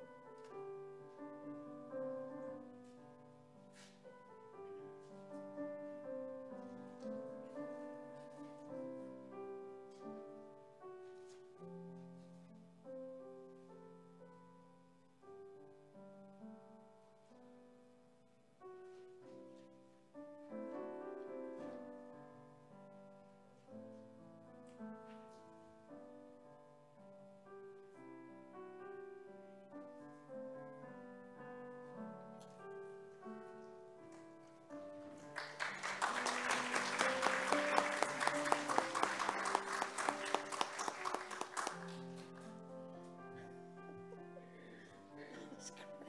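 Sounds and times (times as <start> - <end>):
slow solo piano: 0.0 - 46.0
applause: 35.2 - 42.5.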